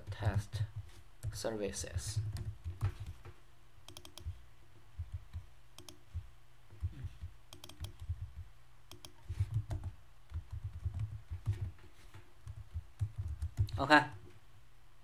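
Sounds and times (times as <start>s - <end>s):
computer keyboard typing: 2.0s - 3.3s, 3.9s - 4.4s, 5.0s - 11.8s, 12.4s - 14.2s.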